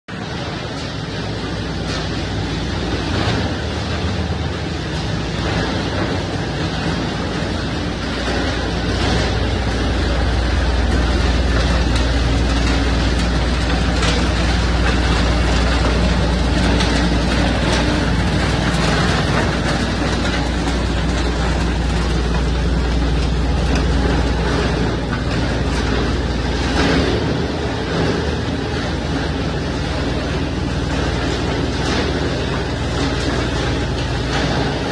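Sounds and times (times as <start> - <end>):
branch shredder grinding: 1.6 - 34.9.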